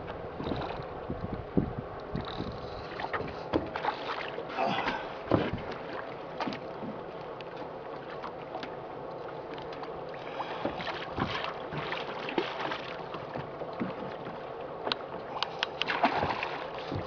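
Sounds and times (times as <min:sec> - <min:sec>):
wind on microphone: 0:00.0 - 0:03.2
water splashing against boat: 0:00.0 - 0:17.0.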